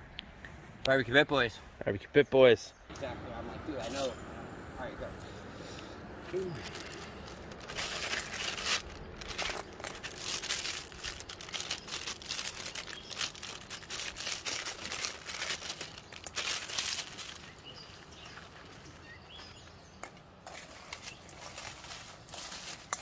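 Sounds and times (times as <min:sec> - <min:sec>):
plastic wrapper crinkling: 0:06.4 - 0:18.6.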